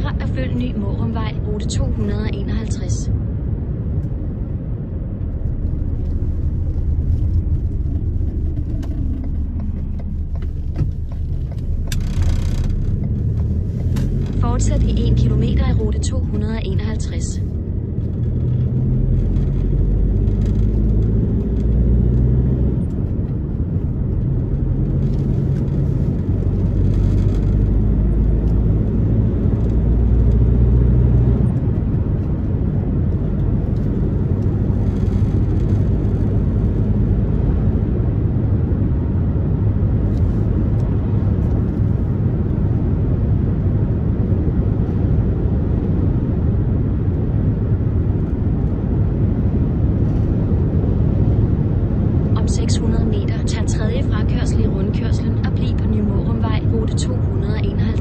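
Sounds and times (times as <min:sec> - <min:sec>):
car engine and tyre rumble: 0:00.0 - 0:58.0.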